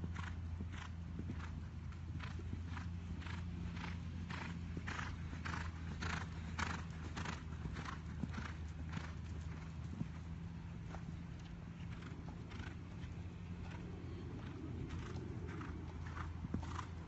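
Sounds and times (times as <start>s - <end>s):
horse cantering: 0.0s - 17.0s
steady low hum: 0.0s - 17.0s.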